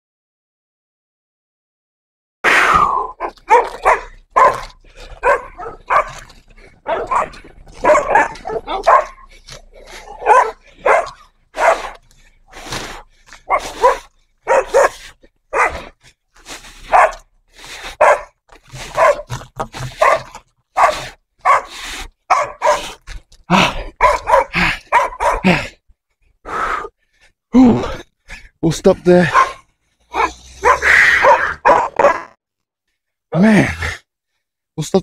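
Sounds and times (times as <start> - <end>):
dogs barking: 3.1 - 12.2, 13.3 - 16.0, 16.8 - 23.0, 23.6 - 25.7, 29.1 - 32.4.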